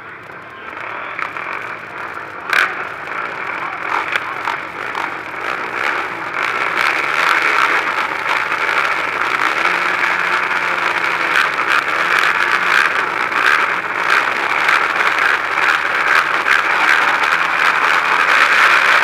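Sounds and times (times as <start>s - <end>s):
quad engines idling and revving: 0.0s - 19.0s.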